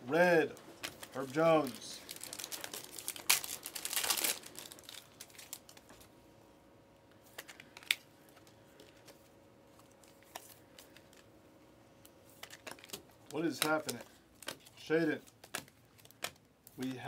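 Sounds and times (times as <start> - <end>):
foil pack tearing and crinkling: 0.8 - 6.0.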